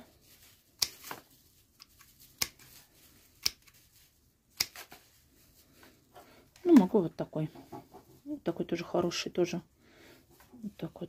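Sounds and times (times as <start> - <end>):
secateurs snipping: 4.6 - 4.9.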